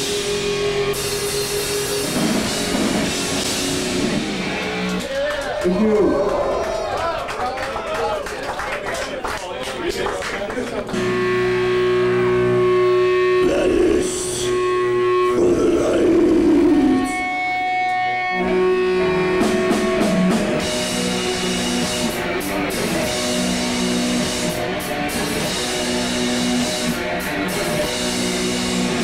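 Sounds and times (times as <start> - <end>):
distorted electric guitar chords: 0.0 - 5.0, 10.9 - 29.0.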